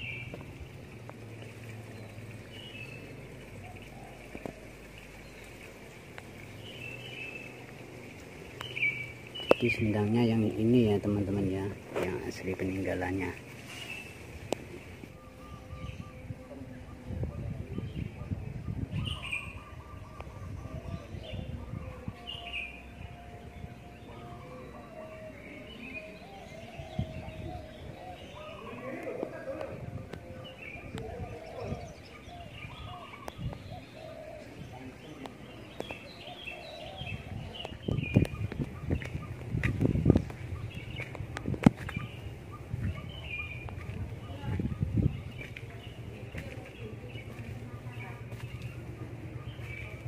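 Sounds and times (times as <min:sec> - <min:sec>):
birds chirping: 0:00.0 - 0:50.0
bird chirps: 0:15.1 - 0:29.1
low steady hum: 0:29.4 - 0:50.0.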